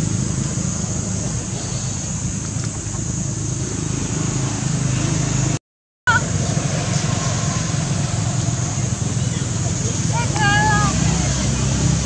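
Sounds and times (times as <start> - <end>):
hiss: 0.0 - 3.0.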